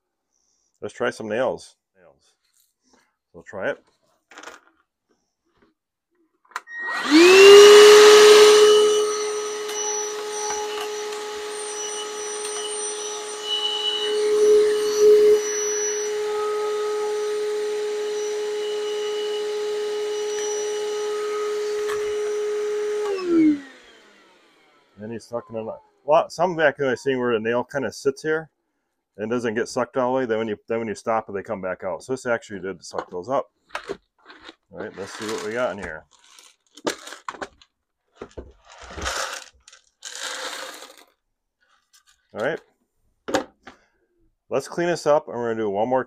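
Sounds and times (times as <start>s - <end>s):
nails being sucked up: 6.6s - 24.8s, 33.8s - 37.6s, 38.2s - 42.2s
vacuum whining: 6.6s - 26.2s, 34.8s - 37.5s, 38.2s - 41.1s
motor winding down: 6.7s - 26.0s, 35.0s - 36.4s, 39.0s - 41.1s
corn kernels rattling out: 34.2s - 41.1s.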